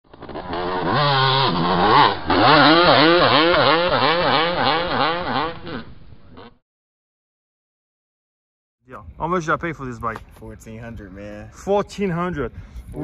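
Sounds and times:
two-stroke engine revving: 0.1 - 6.6.

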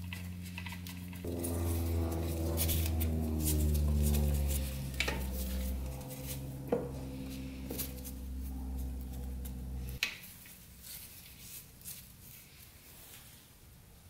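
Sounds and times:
low machine hum: 0.0 - 11.2.

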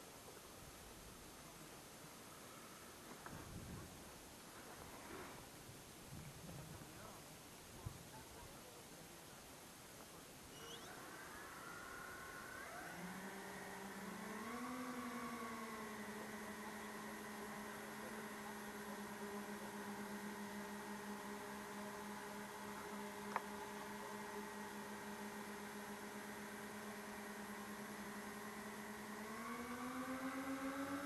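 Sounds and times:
electric motors and propellers humming: 10.4 - 31.0.

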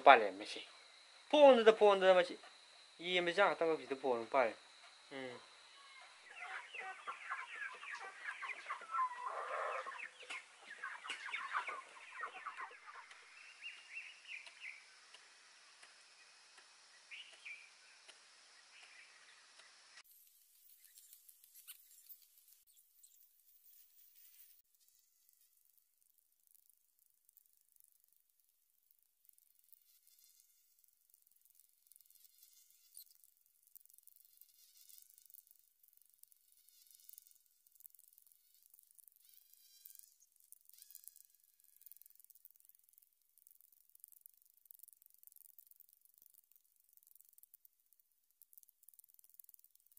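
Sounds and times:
insects buzzing: 0.0 - 49.9
bird calls: 5.1 - 20.0
chickens clucking: 6.0 - 13.2.

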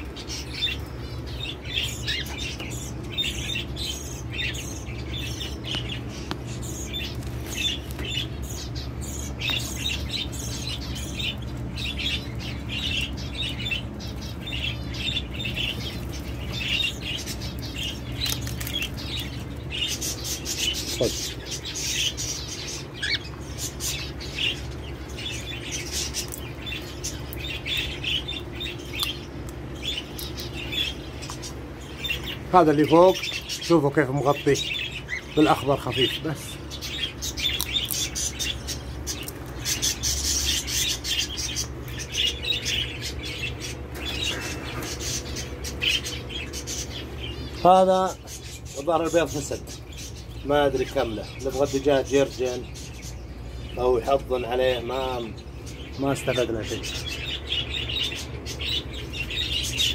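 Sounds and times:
canaries chirping: 0.0 - 59.9
steady low hum: 0.0 - 59.9
wings fluttering: 5.7 - 8.5, 15.4 - 21.4.

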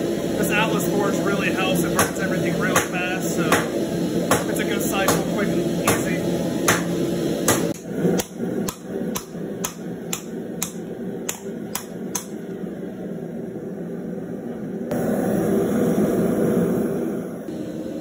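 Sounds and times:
hammer striking metal on anvil: 2.0 - 3.7, 4.3 - 6.1, 6.7 - 12.3.

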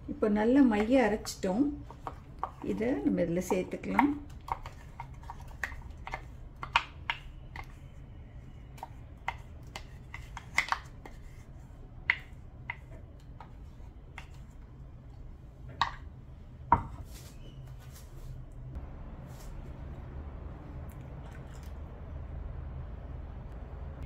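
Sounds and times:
wooden spoon scraping batter: 0.7 - 14.6.

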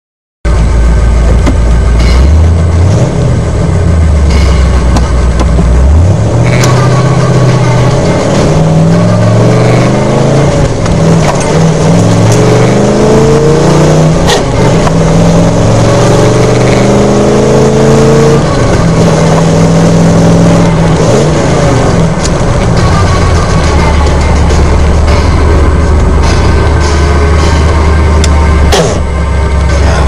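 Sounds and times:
truck engine accelerating: 0.4 - 30.0.

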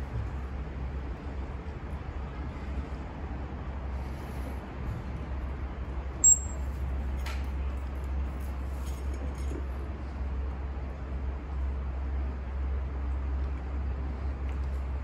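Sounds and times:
low outdoor rumble: 0.0 - 15.0
sharp high-pitched chirp: 6.2 - 6.7.

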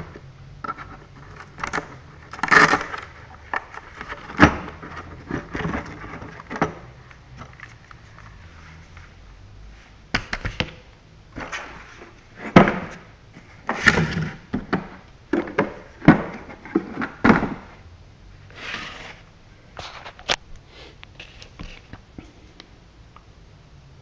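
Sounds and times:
rustling scrapes: 7.4 - 10.0, 18.5 - 21.9.

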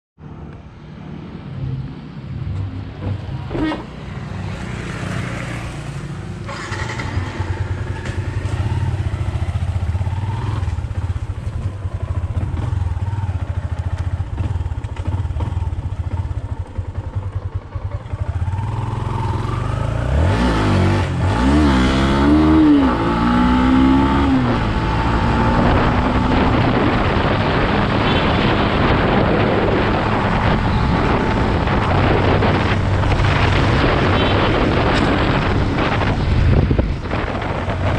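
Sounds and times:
motorcycle engine accelerating: 4.6 - 37.9
wind on microphone: 19.9 - 37.9.

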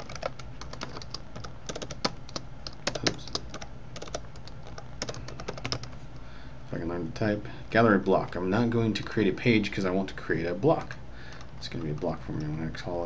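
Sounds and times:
keyboard typing clicks: 0.0 - 5.9.

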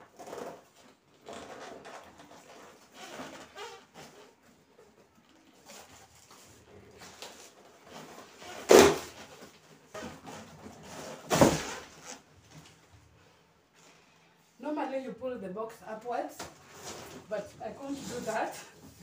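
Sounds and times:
cardboard rustling and crinkling: 0.1 - 13.2, 16.5 - 19.0
cardboard ripping: 7.0 - 12.2.

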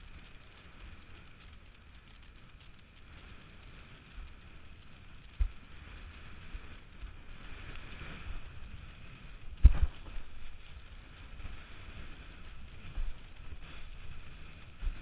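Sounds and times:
wind buffeting microphone: 5.3 - 15.0.

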